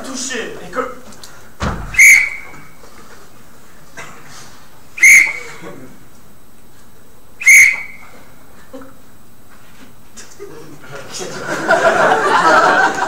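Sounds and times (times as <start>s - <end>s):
referee's whistle blasts: 1.9s - 2.8s, 5.0s - 5.6s, 7.4s - 8.2s.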